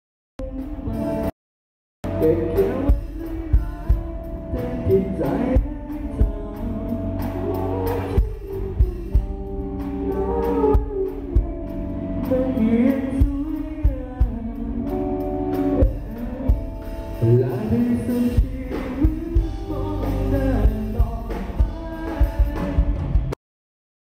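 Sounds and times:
bass guitar: 0:00.4 - 0:01.3, 0:02.0 - 0:23.4
drum kit: 0:00.4 - 0:01.3, 0:02.0 - 0:23.4
electric guitars: 0:02.0 - 0:23.4
man singing: 0:02.0 - 0:23.4.

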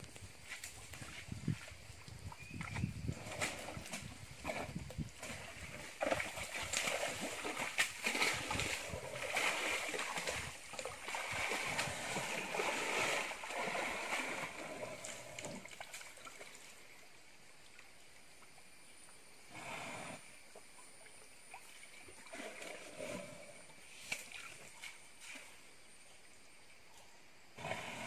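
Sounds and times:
elephant splashing in water: 0:02.6 - 0:16.8, 0:21.6 - 0:25.6.

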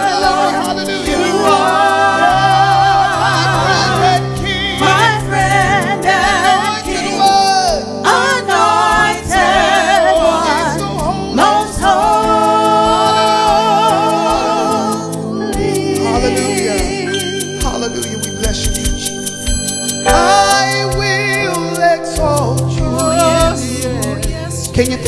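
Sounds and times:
choir singing: 0:00.0 - 0:24.7
instrumental accompaniment: 0:00.0 - 0:25.0.

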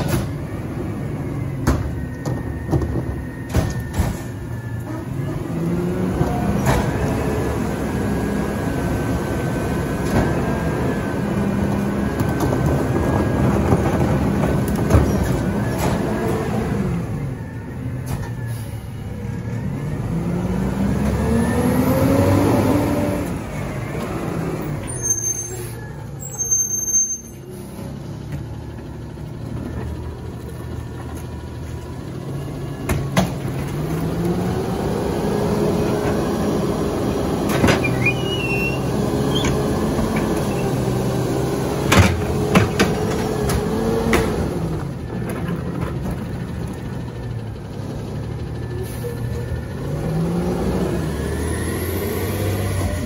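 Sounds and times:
garbage truck diesel engine revving: 0:00.0 - 0:26.8, 0:27.4 - 0:53.0
air brake hisses: 0:25.3 - 0:26.0.

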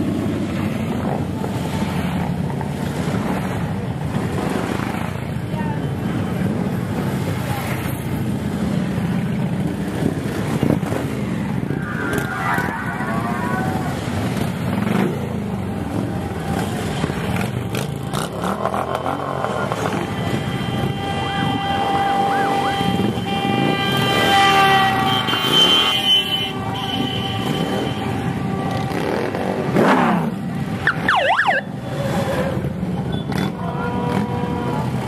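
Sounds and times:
motorcycle engines rumbling: 0:00.0 - 0:35.0
held horn-like tone: 0:18.7 - 0:29.7.

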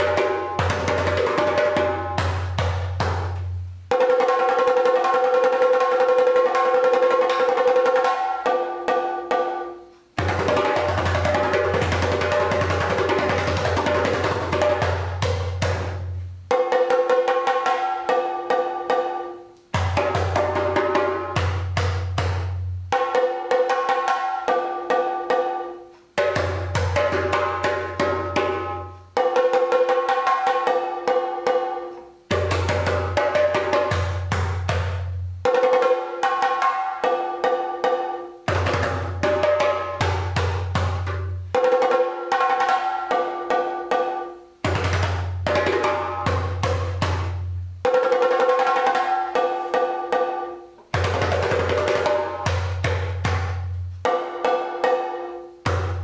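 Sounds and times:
hand drum with deep bass tones: 0:00.0 - 0:56.0
rapid stick-beaten drumming: 0:00.0 - 0:56.0.

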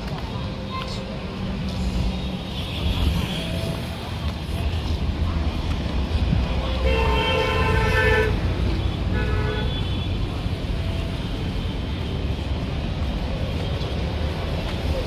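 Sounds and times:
low road rumble: 0:00.0 - 0:15.0
vehicle horn tooting: 0:06.8 - 0:08.4.

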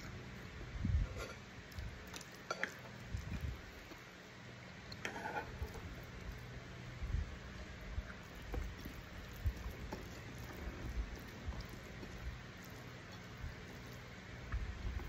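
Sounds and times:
fingers squishing food on a plate: 0:08.0 - 0:15.0.

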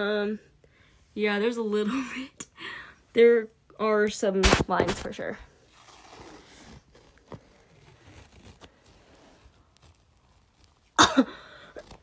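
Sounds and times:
tape peeling off skin: 0:05.7 - 0:12.0.

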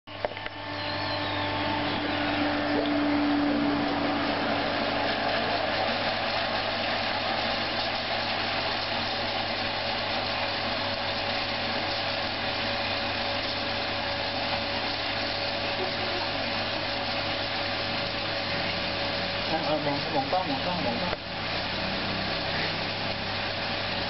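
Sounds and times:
low hum: 0:00.1 - 0:10.2
motor running: 0:00.1 - 0:24.0.

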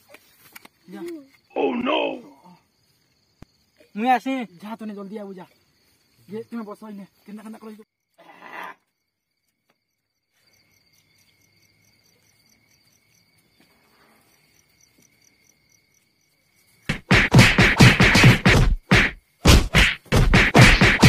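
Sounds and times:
faint insect chirping: 0:00.0 - 0:16.9, 0:19.2 - 0:19.4
fast loud whacks: 0:16.9 - 0:21.0.

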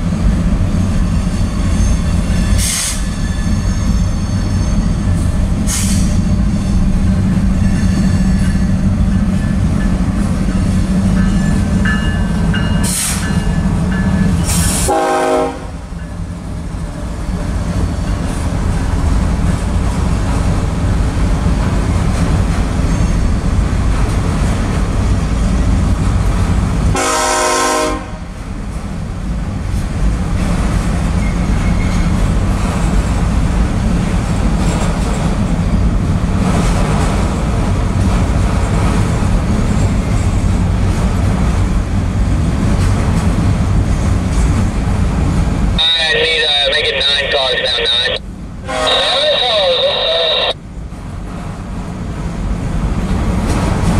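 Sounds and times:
freight train rumbling on rails: 0:00.0 - 0:53.9
locomotive horn blasts: 0:14.8 - 0:15.8, 0:26.9 - 0:28.2, 0:48.7 - 0:50.6.

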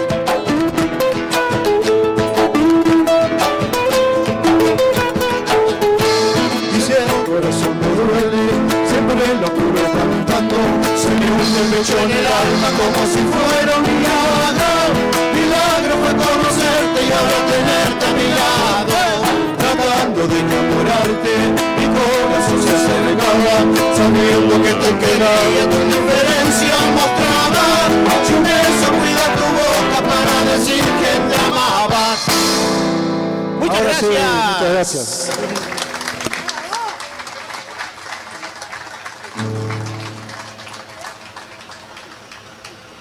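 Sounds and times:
drum kit beat: 0:00.0 - 0:33.8
strummed acoustic guitars: 0:00.0 - 0:36.5, 0:39.4 - 0:40.8
two men singing: 0:06.4 - 0:32.6.

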